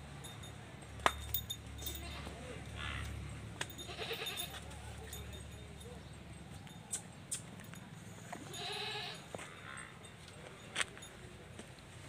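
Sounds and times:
goat bleating: 1.9s - 2.4s, 3.8s - 4.6s, 8.4s - 9.3s.

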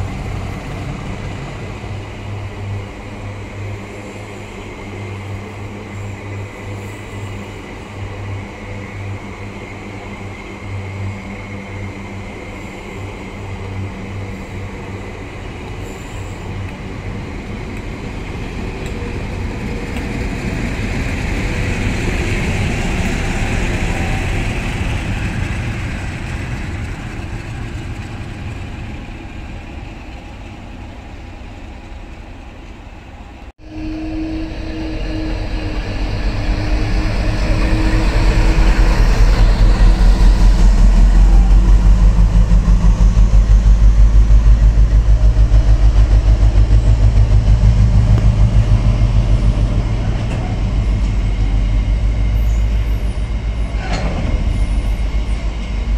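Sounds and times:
diesel locomotive engine droning: 0.0s - 55.9s
train wheels rumbling on rails: 0.0s - 55.9s
low hum: 33.6s - 55.9s.

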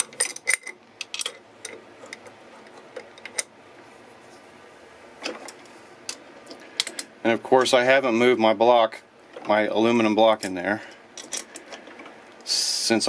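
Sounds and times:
wrenches clinking on metal: 0.0s - 2.2s.

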